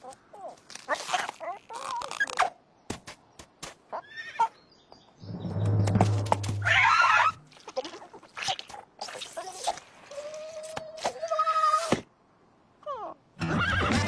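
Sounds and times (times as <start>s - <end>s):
low hum: 5.2s - 6.9s.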